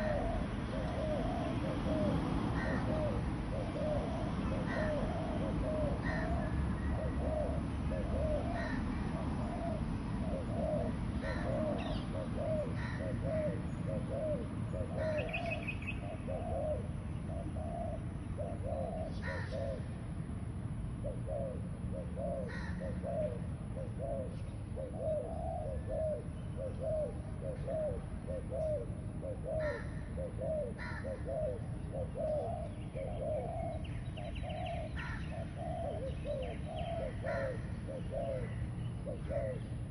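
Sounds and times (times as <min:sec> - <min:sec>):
doves cooing: 0:00.0 - 0:39.9
bird chirps: 0:13.4 - 0:19.8, 0:31.5 - 0:39.9.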